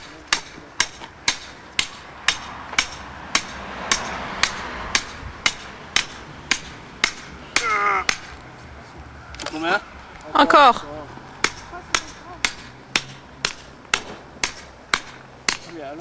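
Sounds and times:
hammer striking metal rod: 0.0 - 8.4, 11.4 - 15.8.

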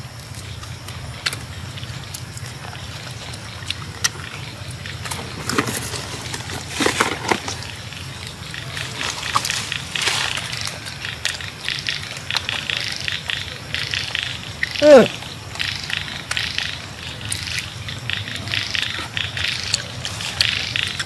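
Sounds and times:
husks crackling as bitten open: 5.0 - 7.8
rustling in cardboard box: 5.1 - 7.8.

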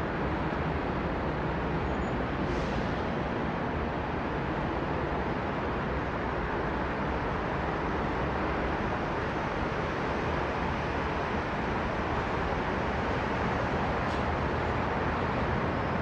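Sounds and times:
road traffic: 0.0 - 16.0.

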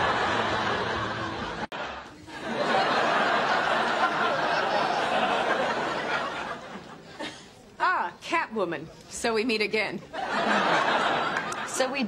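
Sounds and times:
studio audience laughing: 0.0 - 7.5, 10.1 - 12.0.

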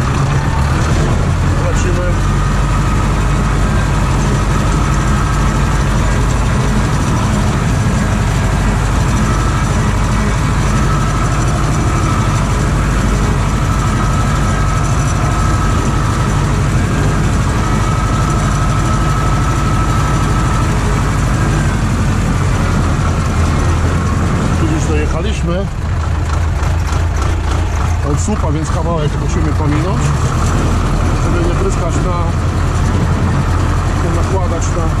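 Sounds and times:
tractor engine running: 0.0 - 35.0
thin steady whine: 1.3 - 25.6.

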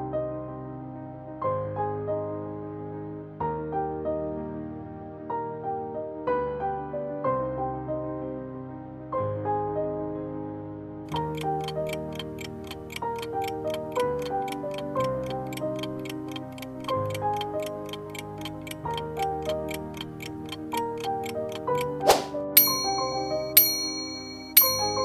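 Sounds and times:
background keyboard music: 0.0 - 25.0
clock-like ticking: 11.1 - 25.0.

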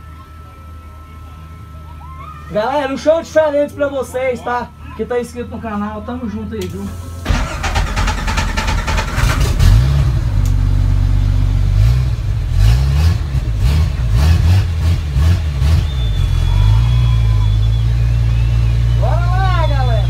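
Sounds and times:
car engine revving: 6.9 - 20.0.

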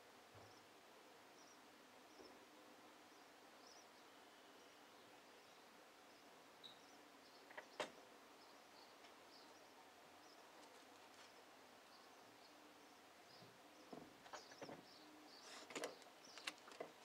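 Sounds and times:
distant bird chirps: 3.0 - 17.0.

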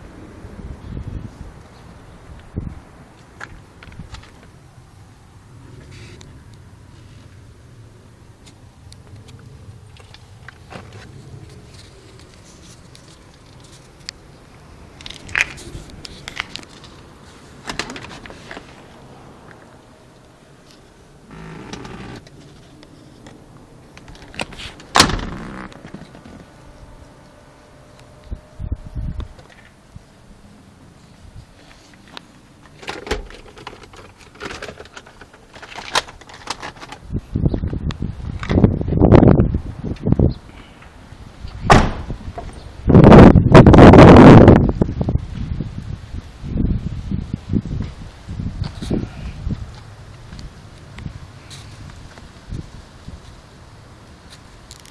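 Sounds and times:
clicks and rustles in car: 17.6 - 18.7, 23.2 - 26.6, 32.0 - 37.0
low bumps and rustling: 20.8 - 27.1.

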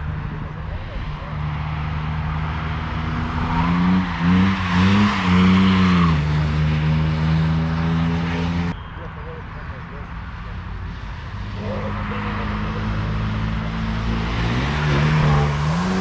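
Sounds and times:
car engine passing by: 11.4 - 16.0.

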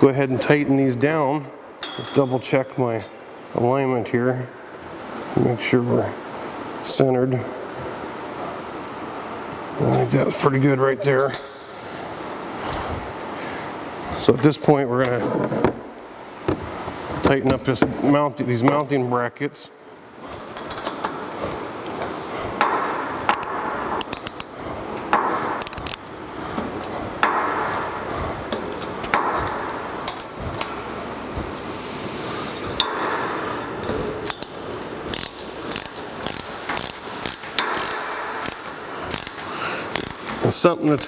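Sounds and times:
ratchet wrench clicking: 23.3 - 24.5, 25.6 - 26.2, 34.2 - 41.0.

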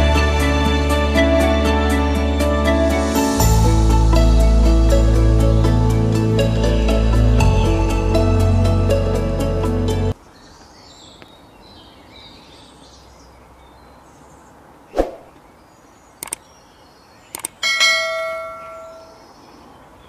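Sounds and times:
quick double clicks: 16.2 - 16.5, 17.3 - 17.6
bell chime: 17.6 - 19.2.

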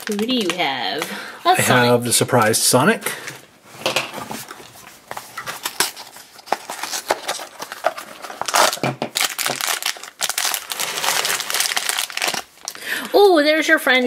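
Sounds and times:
foil bag crinkling and tearing: 0.0 - 1.0, 5.1 - 12.8.

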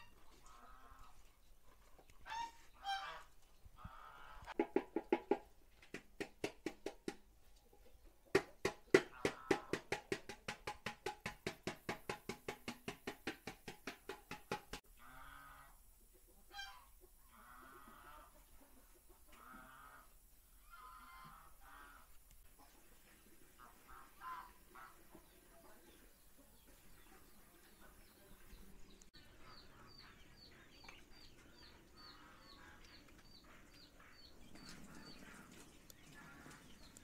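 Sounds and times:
chickens clucking: 0.0 - 37.0
geese honking: 2.2 - 4.6, 16.5 - 18.3, 19.4 - 22.1, 23.6 - 25.2, 32.1 - 37.0.

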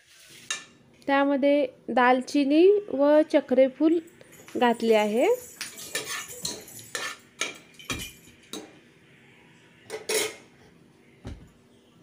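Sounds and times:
metal kitchenware clinking: 4.3 - 8.7, 9.9 - 10.5.

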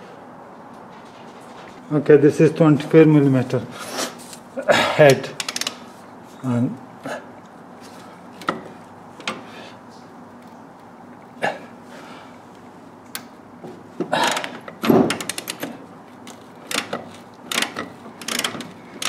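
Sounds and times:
metal clicks and knocks: 14.0 - 18.8
ratchet wrench clicking: 16.3 - 19.0.

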